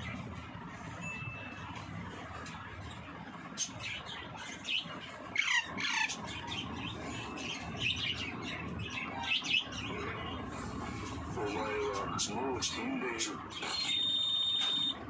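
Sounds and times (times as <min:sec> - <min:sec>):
parrot squawking and chirping: 0:03.6 - 0:15.0.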